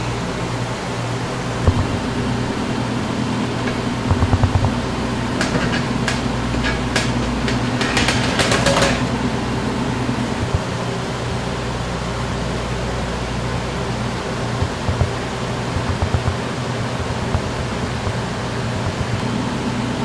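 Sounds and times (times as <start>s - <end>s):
machine hum: 0.0s - 20.0s
low thuds: 1.6s - 2.4s
sharp clicks and taps: 4.1s - 4.8s, 14.6s - 16.4s, 17.0s - 19.3s.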